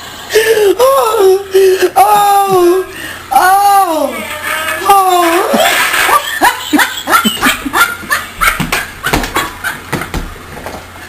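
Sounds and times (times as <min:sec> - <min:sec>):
person laughing hard: 0:05.5 - 0:10.3.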